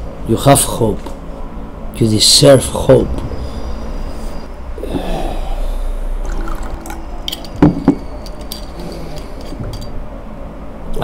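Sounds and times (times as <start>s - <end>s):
liquid pouring into a glass: 6.2s - 7.4s.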